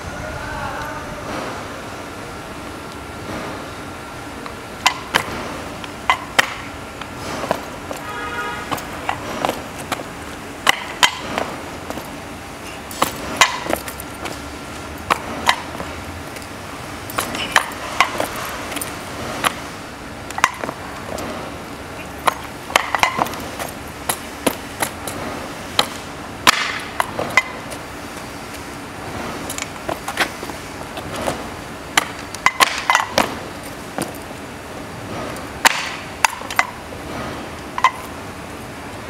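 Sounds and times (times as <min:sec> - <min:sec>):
hard-soled footsteps on concrete: 0:04.4 - 0:38.1
scooter frame knocking on wood: 0:10.7 - 0:12.1, 0:20.4 - 0:20.8, 0:22.2 - 0:23.4.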